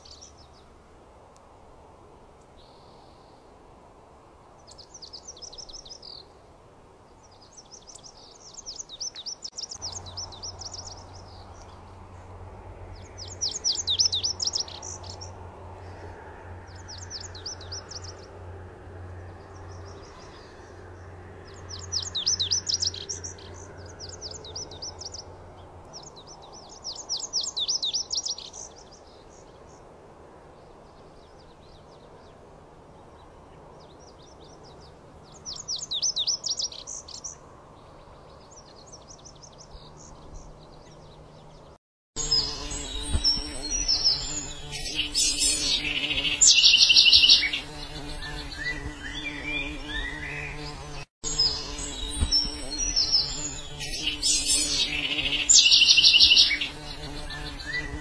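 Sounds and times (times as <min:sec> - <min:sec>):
bunting singing: 0:07.2 - 0:12.2, 0:12.8 - 0:18.4, 0:19.0 - 0:29.8, 0:34.1 - 0:58.0.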